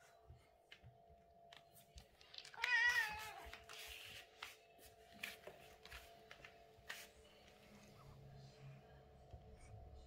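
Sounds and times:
cat meowing: 2.5s - 3.5s.

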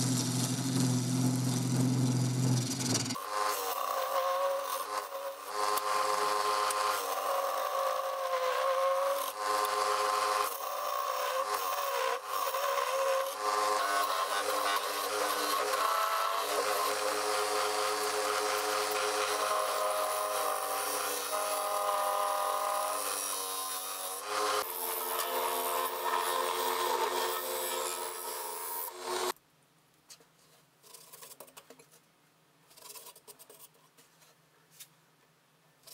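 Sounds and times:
wood lathe motor whine: 0.0s - 29.4s
turning tool scraping wood: 32.7s - 34.9s.

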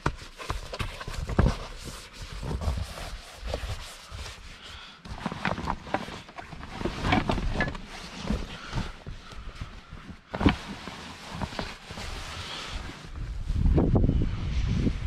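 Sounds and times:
camping gear knocks and thumps: 0.0s - 1.8s, 5.0s - 12.0s.

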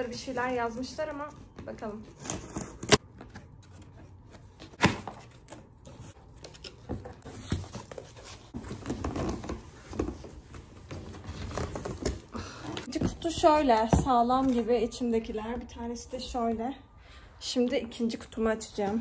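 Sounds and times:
cardboard rustling and tearing: 2.1s - 12.3s.

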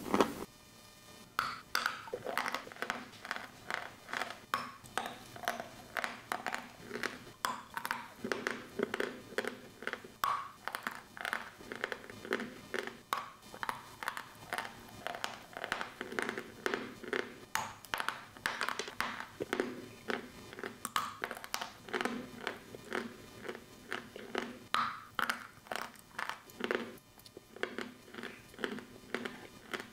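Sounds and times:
chalk crunching between teeth: 2.0s - 7.2s, 18.6s - 24.6s, 25.2s - 29.9s.

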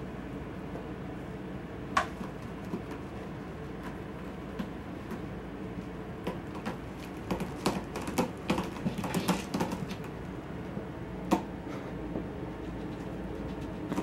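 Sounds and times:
kitten claws scratching and tapping: 12.6s - 14.0s.

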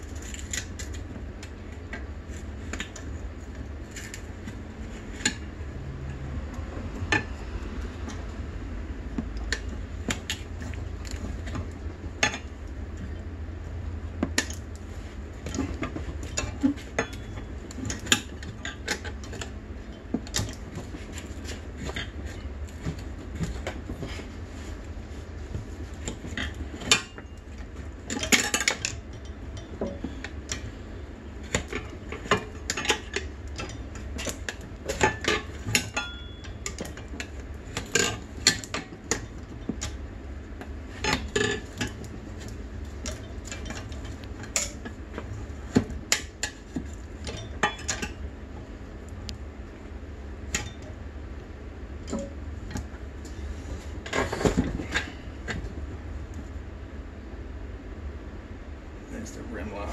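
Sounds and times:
steady low hum: 0.0s - 59.9s
tire irons clinking on metal rim: 6.9s - 49.4s.

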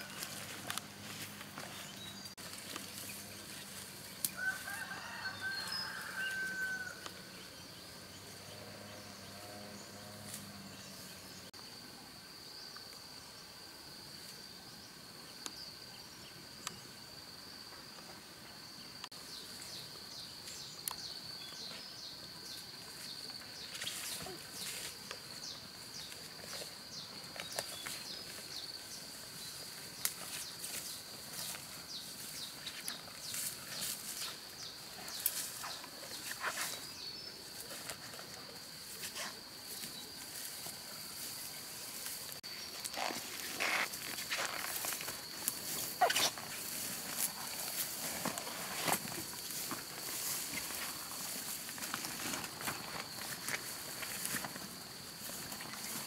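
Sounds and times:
rooster crowing: 4.4s - 7.1s.

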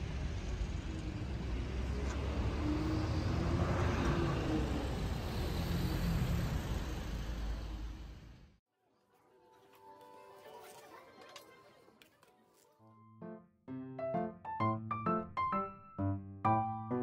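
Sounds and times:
vehicle passing: 0.0s - 8.5s
road and wind rumble: 0.0s - 8.6s.

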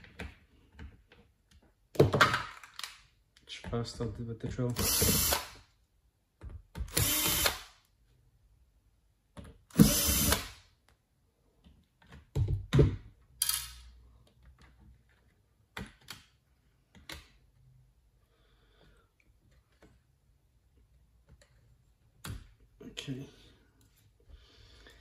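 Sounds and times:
cordless drill bursts: 4.8s - 5.6s, 6.9s - 7.7s, 9.7s - 10.6s.

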